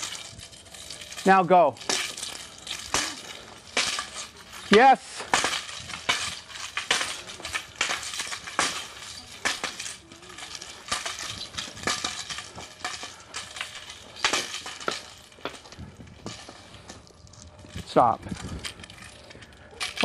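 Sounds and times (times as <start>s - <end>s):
wooden staff sections clacking: 0.0s - 20.0s.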